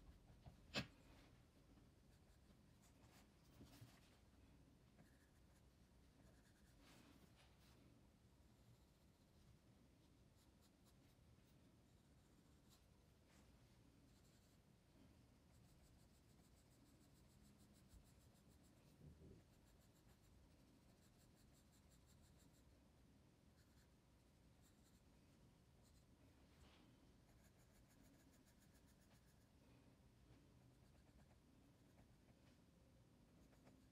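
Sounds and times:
pencil scratching on paper: 15.5 - 22.8, 27.2 - 29.4, 30.7 - 32.4, 33.3 - 33.9.

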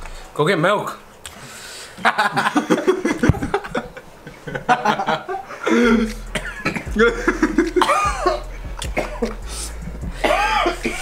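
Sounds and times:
men laughing: 2.0 - 11.0
men coughing: 2.3 - 11.0.

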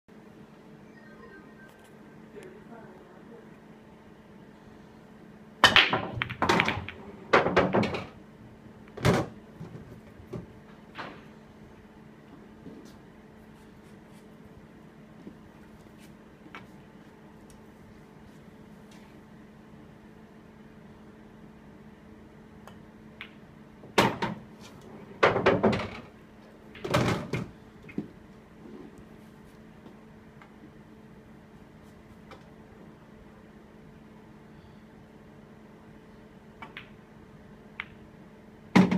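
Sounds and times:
low steady hum: 0.1 - 38.9
cue ball breaking racked balls: 5.6 - 8.2, 23.2 - 24.5, 25.1 - 26.1
pool balls clattering: 5.6 - 8.2, 23.2 - 28.2.

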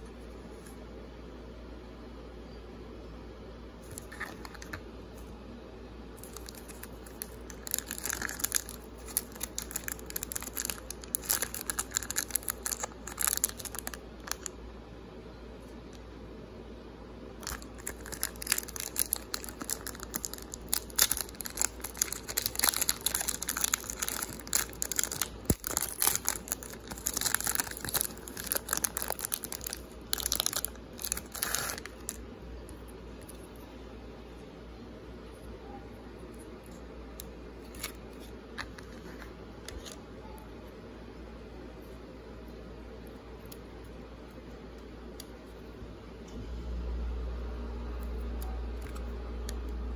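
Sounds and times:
card pack wrapper crinkling and tearing: 6.2 - 14.6, 17.4 - 33.4, 37.6 - 40.0.

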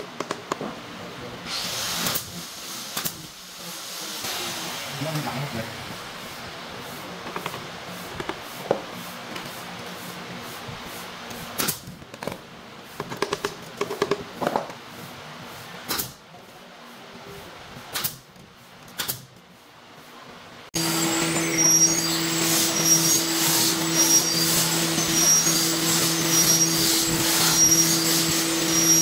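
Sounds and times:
steady machine hum with hiss: 0.0 - 29.0
nail gun firing into wood: 19.0 - 19.3.

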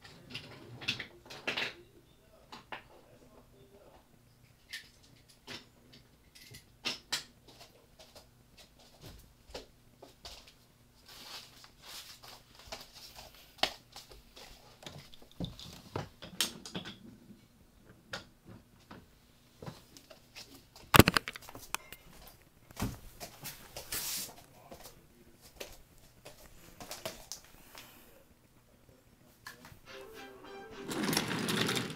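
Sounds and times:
handling clicks and knocks: 21.0 - 22.0.

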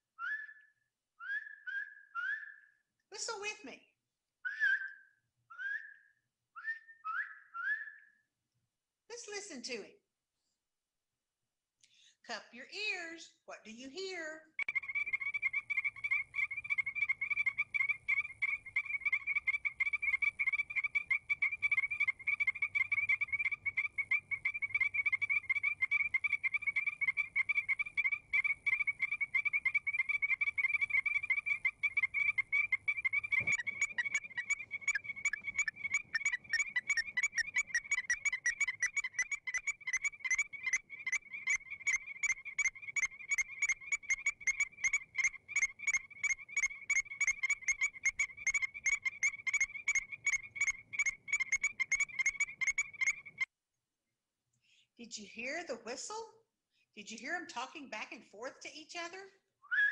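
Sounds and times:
frogs calling: 14.6 - 53.5.

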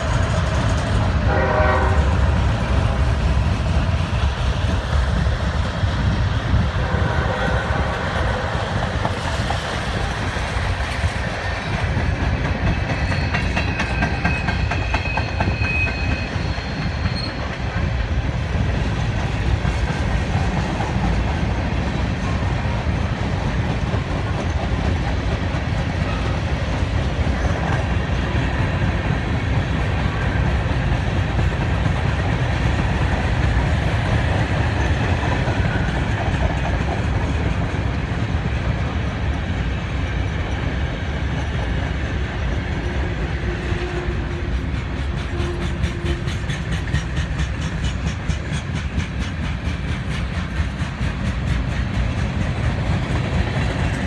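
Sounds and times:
clickety-clack over rail joints: 0.0 - 54.0
train wheels rumbling on rail: 0.0 - 54.0
high wheel squeal: 12.8 - 17.7.

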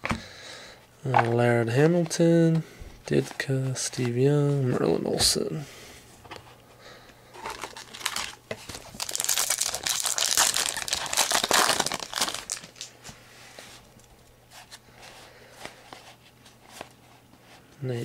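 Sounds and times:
foil wrapper crinkling: 7.4 - 13.0.

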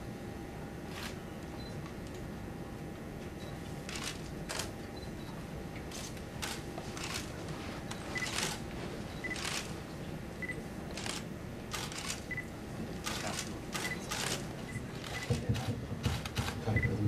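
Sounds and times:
low room hum: 0.0 - 17.0
camera shutters clicking: 3.9 - 4.7, 5.9 - 7.3, 8.2 - 8.6, 9.3 - 9.7, 10.9 - 12.2, 13.0 - 14.4.

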